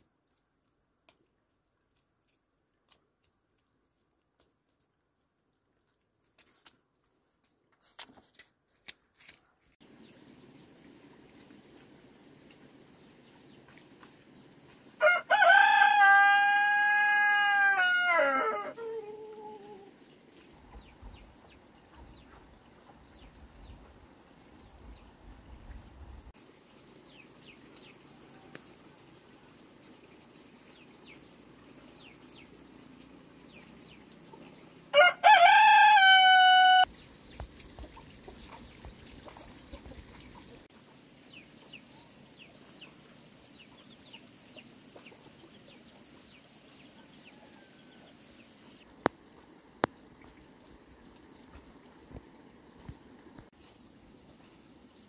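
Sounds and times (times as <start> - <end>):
rooster crowing: 15.0 - 19.9, 34.9 - 36.9.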